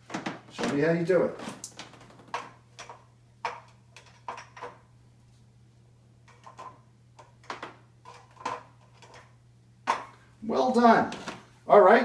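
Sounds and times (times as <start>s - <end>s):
steady low hum: 0.0s - 12.0s
plastic cups clacking on rack: 1.7s - 4.9s, 6.3s - 10.2s.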